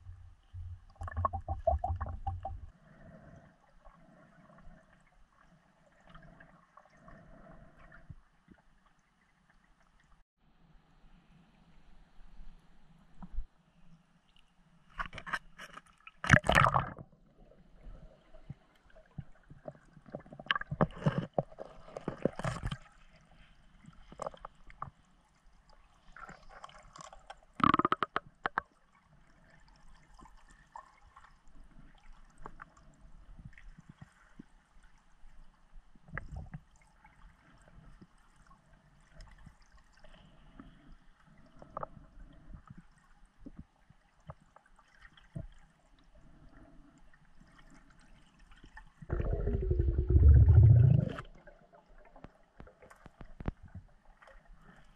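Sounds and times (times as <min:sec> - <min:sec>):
muffled underwater sound: 0:00.0 - 0:03.3, 0:49.1 - 0:51.4
water splashing and gurgling: 0:00.0 - 0:03.3, 0:16.2 - 0:17.2, 0:49.0 - 0:54.9
small clicks underwater: 0:00.5 - 0:02.7, 0:14.3 - 0:17.0, 0:18.5 - 0:23.0, 0:23.9 - 0:25.0, 0:26.1 - 0:28.8, 0:36.0 - 0:38.1, 0:52.1 - 0:54.9.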